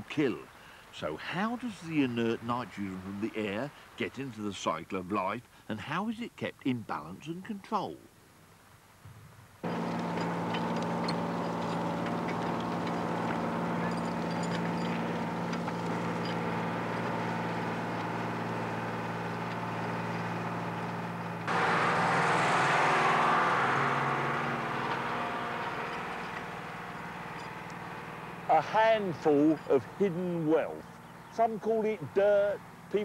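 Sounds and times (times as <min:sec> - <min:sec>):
tractor engine running: 0:09.6 - 0:33.0.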